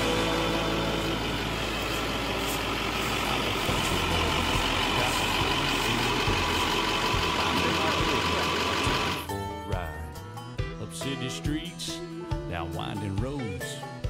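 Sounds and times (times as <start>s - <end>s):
bus engine idling: 0.0s - 9.6s.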